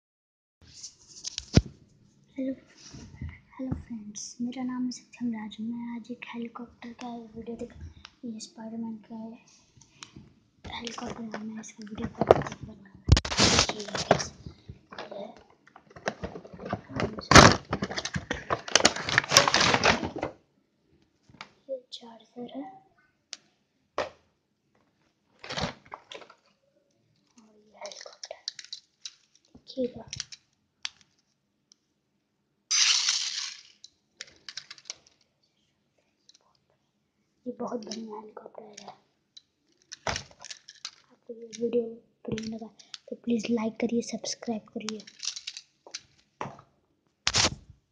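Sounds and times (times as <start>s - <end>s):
cardboard box rustling and clattering: 15.9s - 20.3s.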